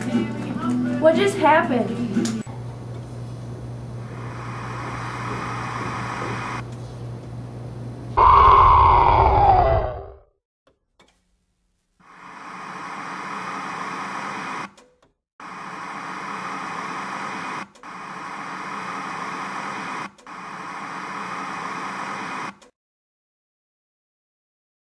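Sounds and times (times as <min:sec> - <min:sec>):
static hiss: 0:02.5 - 0:06.7, 0:12.0 - 0:14.8, 0:15.4 - 0:22.6.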